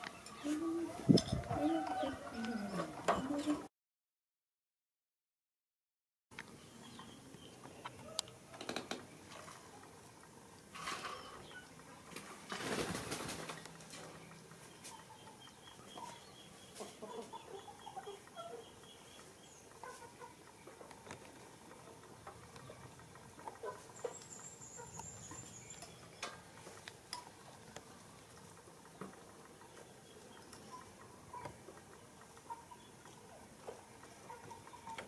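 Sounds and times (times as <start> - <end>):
faint bird chirps: 11.0 - 11.8.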